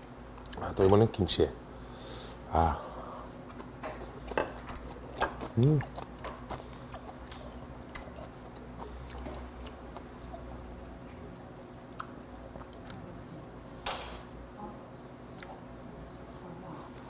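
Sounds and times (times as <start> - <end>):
person chewing: 3.4 - 13.0, 15.2 - 15.7.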